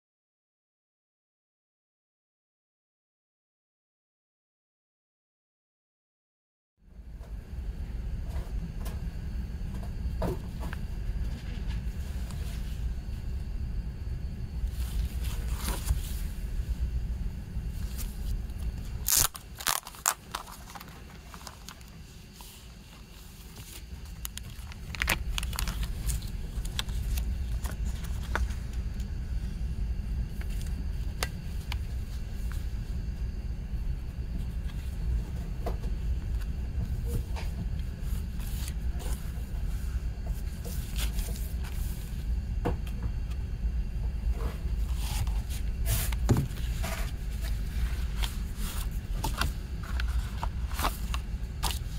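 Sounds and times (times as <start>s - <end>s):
card and paper rustling: 14.7s - 16.3s, 17.8s - 29.1s, 44.8s - 51.9s.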